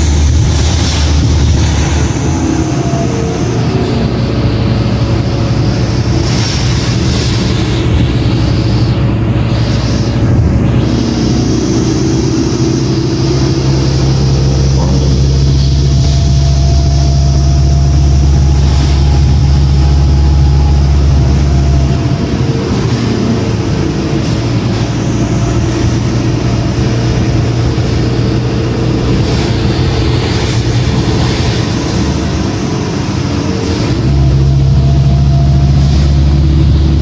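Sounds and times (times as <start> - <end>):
diesel bus engine droning: 0.0 - 37.0.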